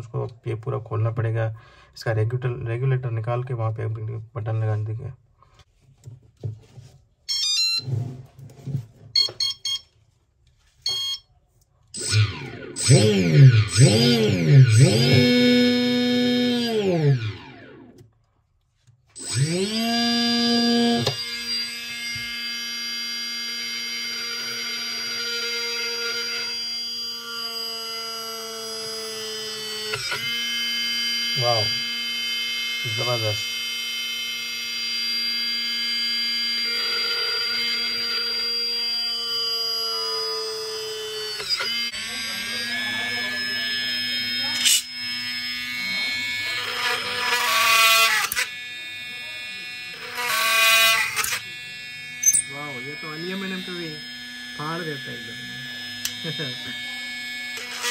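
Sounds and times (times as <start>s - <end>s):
drill motor whine: 12.0s - 18.0s, 19.1s - 57.9s
drilling into aluminium: 12.0s - 18.0s, 19.2s - 57.9s.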